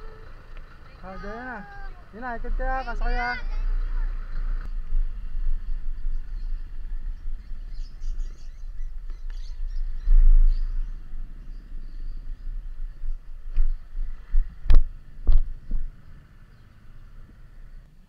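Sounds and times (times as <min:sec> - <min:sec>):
faint scooter engine: 0:00.0 - 0:08.7, 0:09.4 - 0:18.0
wind rumble on microphone: 0:03.6 - 0:17.9.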